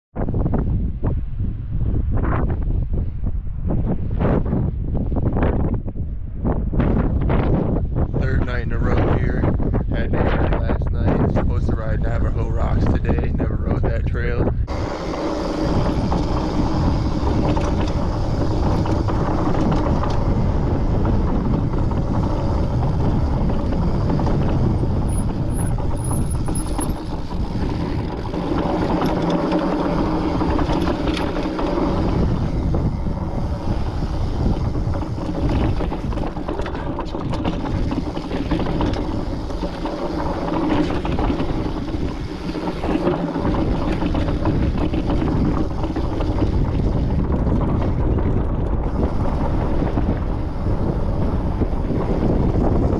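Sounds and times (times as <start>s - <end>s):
low tyre rumble: 0.1s - 52.9s
wind noise on microphone: 0.1s - 52.9s
bike rattle: 14.7s - 52.9s.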